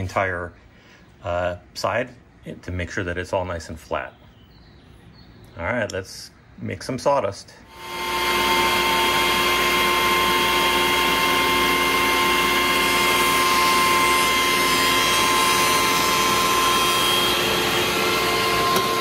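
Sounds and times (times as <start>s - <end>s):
cutterhead planing wood: 7.7s - 19.0s
jointer motor whine: 7.7s - 19.0s.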